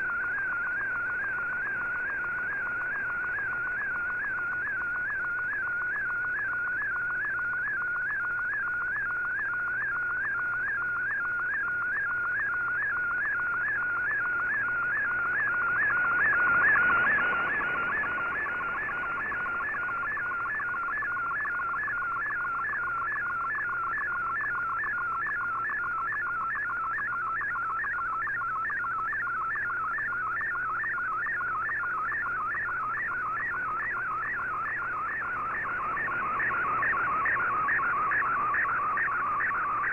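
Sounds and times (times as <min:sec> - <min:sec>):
warbling data tone: 0:12.0 - 0:39.9.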